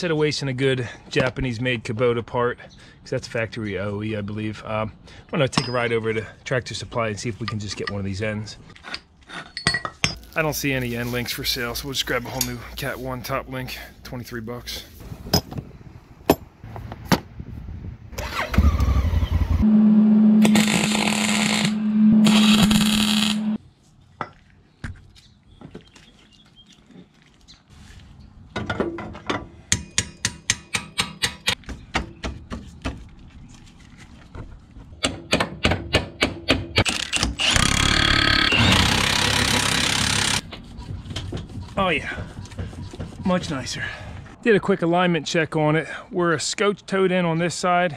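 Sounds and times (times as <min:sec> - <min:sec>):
cordless power tool driving fasteners: 0:20.4 - 0:23.4, 0:36.8 - 0:40.4.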